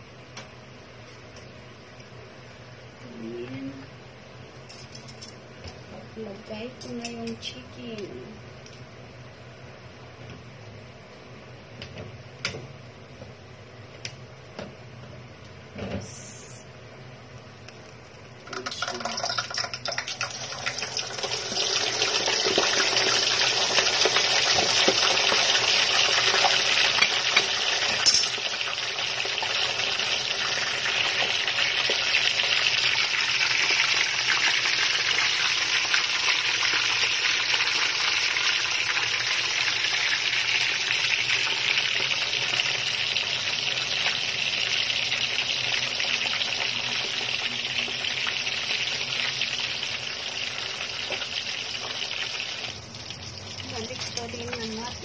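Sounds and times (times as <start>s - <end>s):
chicken deep-frying sizzle: 18.0s - 55.0s.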